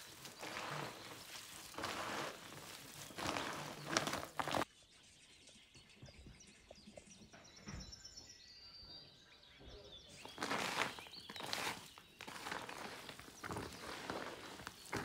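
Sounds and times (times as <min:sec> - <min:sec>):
loud rustling and crunching: 0:00.0 - 0:04.6, 0:10.2 - 0:15.0
faint bird chirps: 0:04.7 - 0:12.4.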